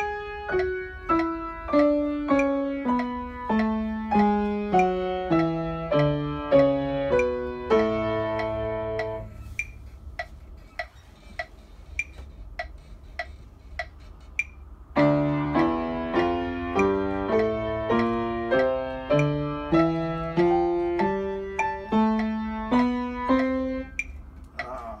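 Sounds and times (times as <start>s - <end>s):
piano playing chords: 0.0s - 9.5s, 14.9s - 24.1s
evenly spaced clicks: 0.0s - 24.9s.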